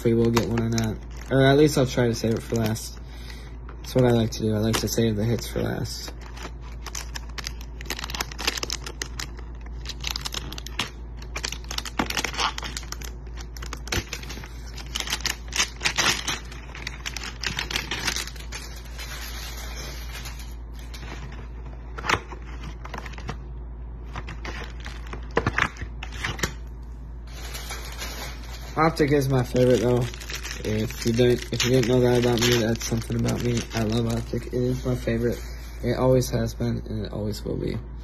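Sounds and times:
paper crinkling and tearing: 3.8s - 23.4s, 27.3s - 35.4s.

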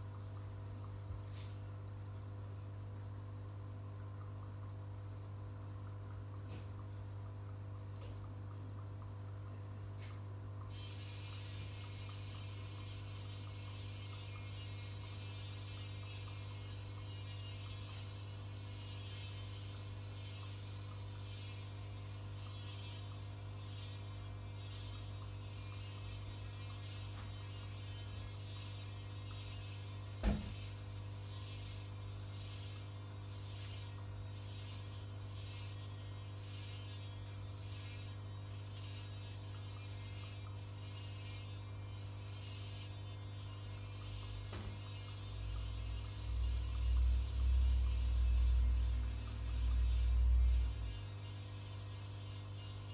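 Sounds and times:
electrical hum: 0.0s - 52.9s
air stone bubbles hissing: 10.6s - 52.4s.

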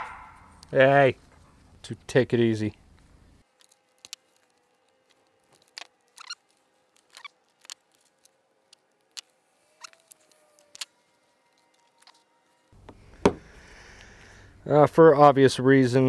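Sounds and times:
plastic crinkle: 3.4s - 12.2s.

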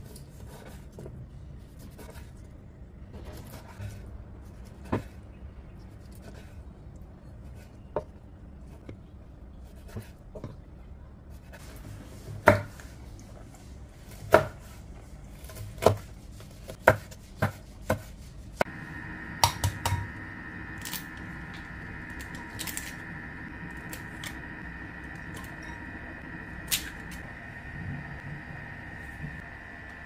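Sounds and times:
knife chopping on wooden board: 15.4s - 18.1s
steady hum: 18.2s - 30.0s.

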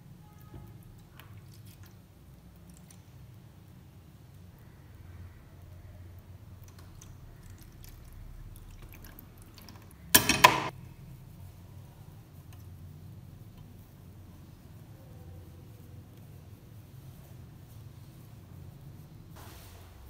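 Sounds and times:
trickling and drips: 0.1s - 10.2s
liquid pouring in thin stream: 6.4s - 10.2s.

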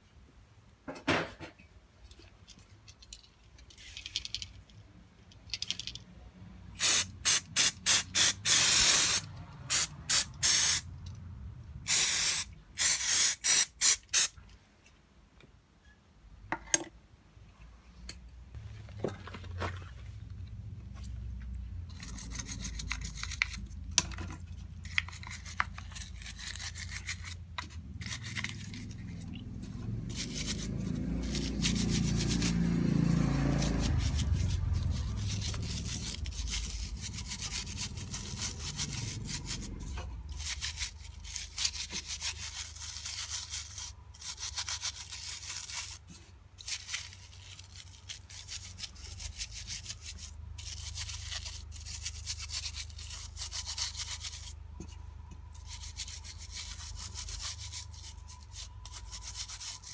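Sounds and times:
brush scrubbing metal: 21.9s - 23.8s, 24.7s - 47.3s, 47.9s - 54.6s, 55.6s - 59.9s.

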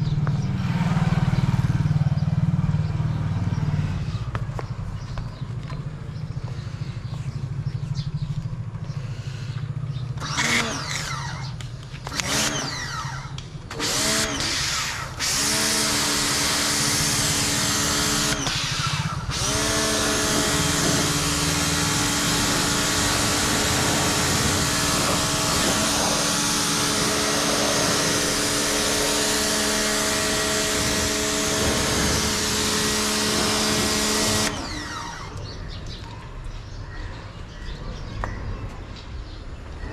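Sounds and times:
pressure washer motor humming: 10.2s - 35.6s.

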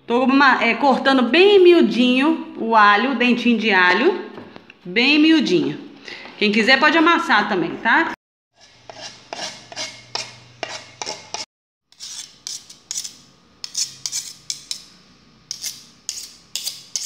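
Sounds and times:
knife scraping on cutting board: 8.6s - 17.0s.

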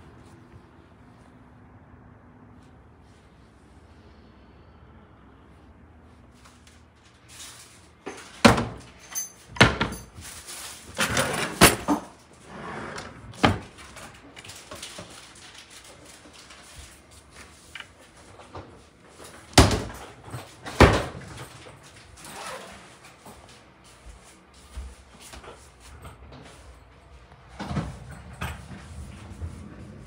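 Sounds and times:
cupboard doors opening and shutting: 8.1s - 10.2s, 10.8s - 14.4s, 17.8s - 23.0s.

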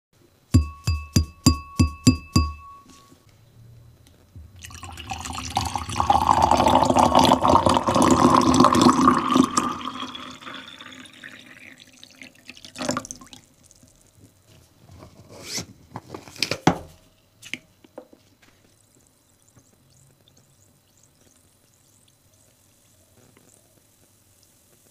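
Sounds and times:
clinks against glass: 0.6s - 3.1s
wine glass tapped ringing: 0.6s - 3.1s
water pouring into glass: 4.6s - 13.5s.

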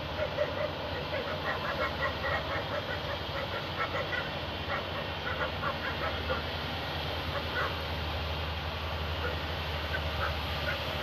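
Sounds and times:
birds honking: 0.0s - 6.6s, 9.2s - 11.0s.

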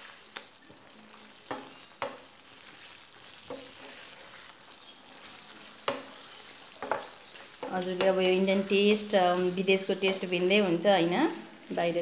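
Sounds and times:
wooden spatula stirring gravy: 0.0s - 10.5s
faint sizzle of gravy: 0.0s - 12.0s
spatula knocking against pan: 6.8s - 8.2s.

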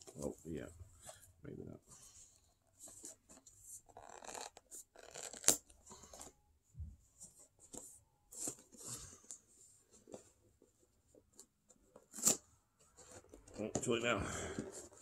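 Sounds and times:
cardboard tearing and rustling: 12.0s - 12.4s.

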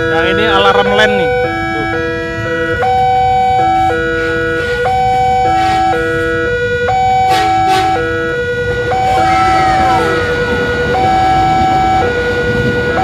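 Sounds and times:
level crossing alarm chime: 0.0s - 13.0s.

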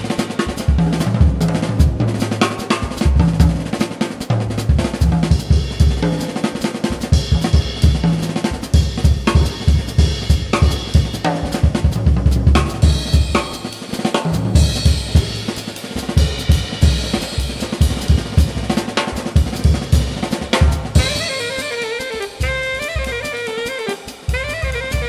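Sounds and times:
fast jazz drum solo: 0.0s - 25.0s
alto saxophone bebop lines: 17.9s - 25.0s.

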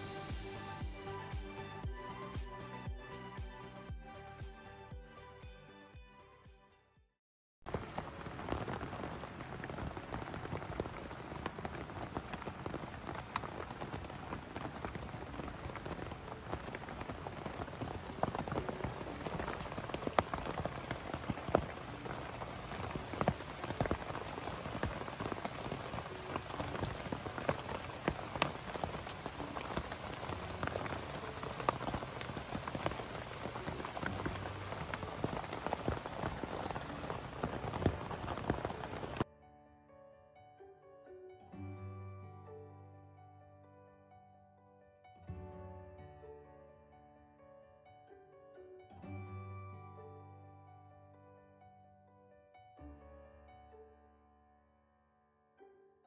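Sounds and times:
rain drops on tent canvas: 0.0s - 4.5s, 7.6s - 39.2s.

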